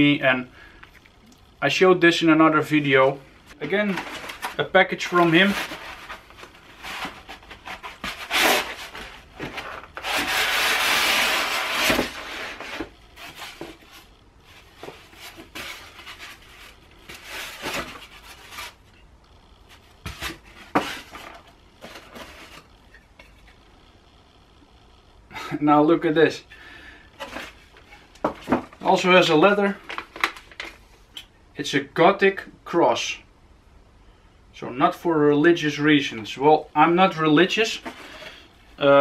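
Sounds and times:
cardboard and foam scraping: 3.6s - 18.9s.

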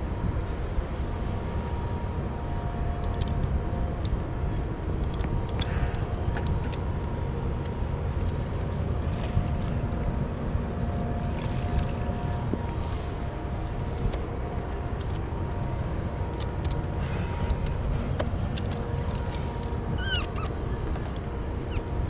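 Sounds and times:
wind rumble on microphone: 0.0s - 22.0s
light clicks of metal hardware: 3.0s - 8.4s, 13.6s - 21.3s.

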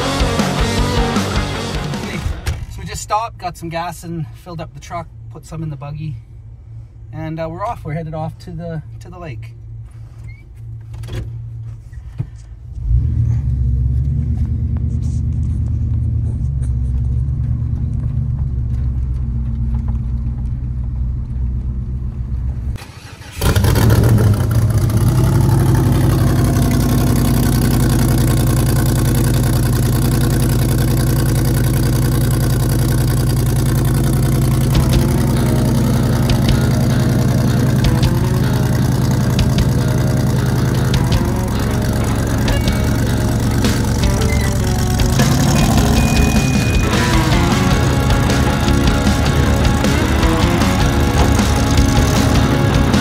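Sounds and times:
loud buggy engine running: 0.0s - 2.8s, 12.8s - 22.8s, 23.4s - 53.0s
low rumble inside a truck cab: 2.2s - 53.0s.

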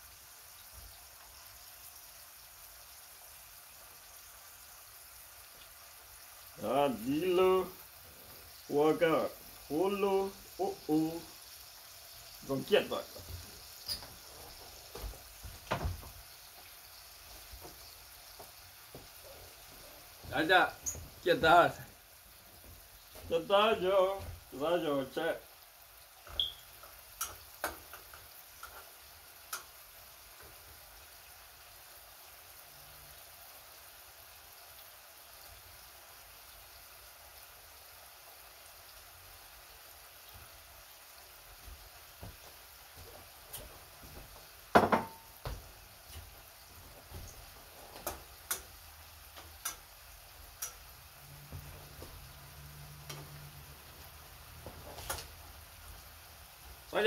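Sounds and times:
food sizzling in pan: 0.0s - 57.0s
spatula tapping a frying pan: 26.4s - 29.8s, 44.7s - 46.3s, 48.0s - 49.9s, 50.6s - 50.8s.

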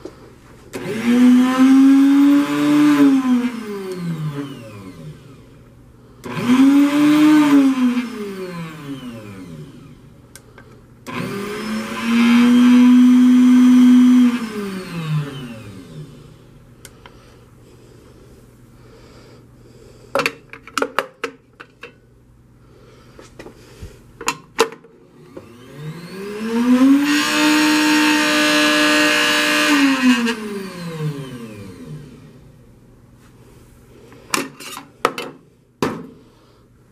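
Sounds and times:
drink mixer motor whirring: 0.8s - 5.5s, 6.2s - 10.0s, 11.0s - 16.4s, 25.1s - 32.4s.

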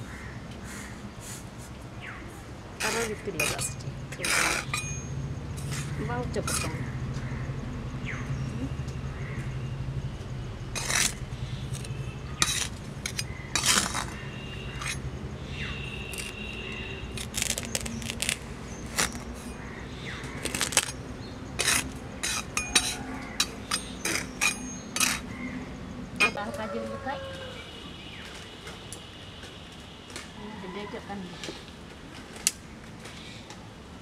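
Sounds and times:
metal spatula scraping sand: 2.8s - 5.0s, 5.6s - 6.8s, 10.8s - 15.0s, 16.0s - 16.5s, 17.2s - 19.6s, 21.6s - 25.3s
metal clinking on glass: 2.9s - 5.2s, 22.2s - 25.2s.

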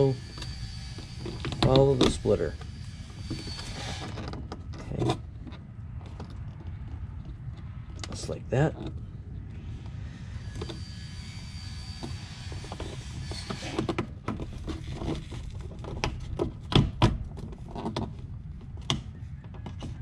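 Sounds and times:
steady low rumble: 0.0s - 13.3s.

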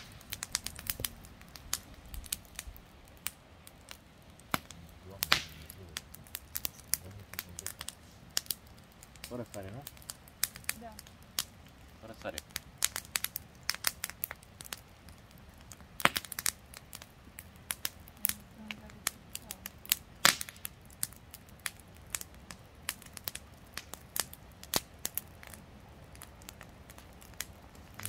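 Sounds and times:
campfire crackling and popping: 0.0s - 28.0s.

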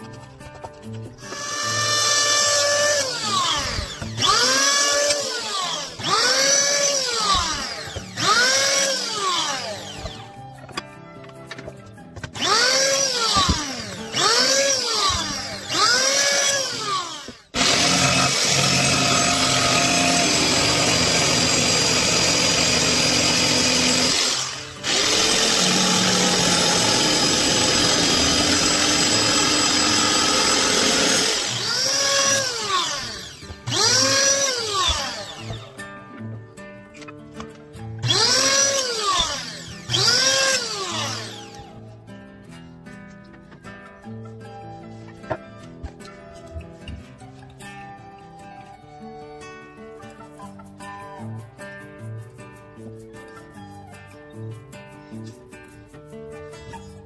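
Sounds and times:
power tool running: 0.6s - 10.4s, 12.2s - 35.8s, 38.0s - 41.8s
electric planer motor whine: 1.2s - 10.4s, 12.3s - 35.7s, 38.1s - 41.7s.

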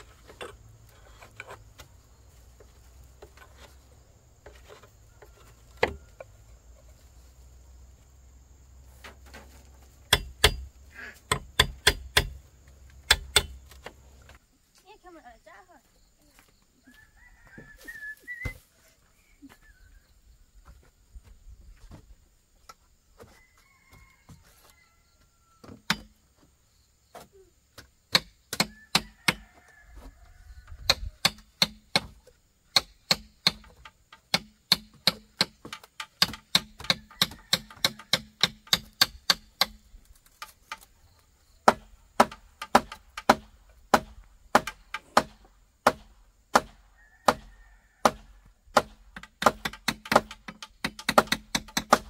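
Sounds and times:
chopping blows on wood: 13.1s - 13.9s, 30.8s - 39.8s, 41.6s - 52.0s
faint bird chirps: 15.9s - 20.4s.

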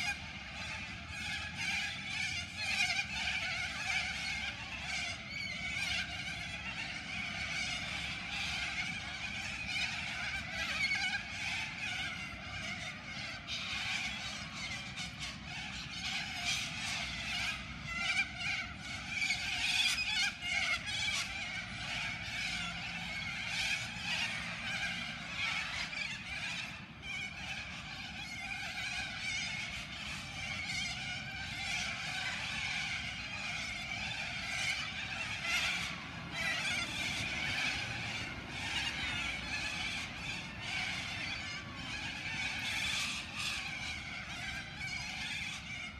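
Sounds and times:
flock of corellas calling: 0.0s - 45.9s.

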